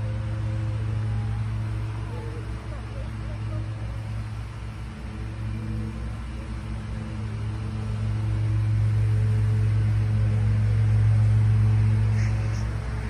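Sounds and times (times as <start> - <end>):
machine humming: 0.0 - 13.0.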